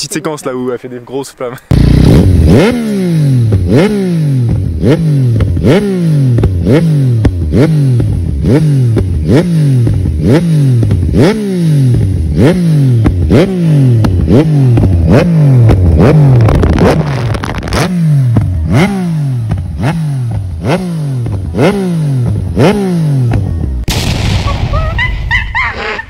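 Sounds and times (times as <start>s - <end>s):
motorcycle engine revving: 1.7s - 23.9s
exhaust pops: 13.9s - 20.6s.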